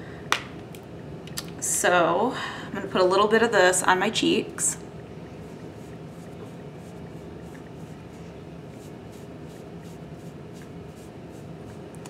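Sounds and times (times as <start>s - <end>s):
steady low hum: 0.0s - 12.0s
makeup brush swishing: 5.8s - 11.9s.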